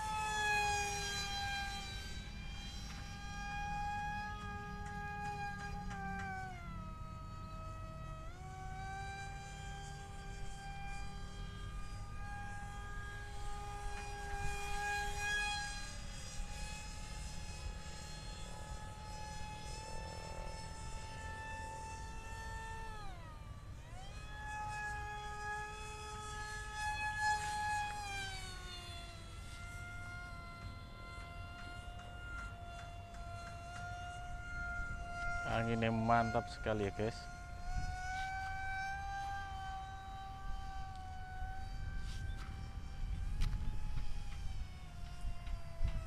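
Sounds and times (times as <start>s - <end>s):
electric motor and propeller whining: 0.0s - 46.0s
wind rumble on microphone: 33.5s - 46.0s.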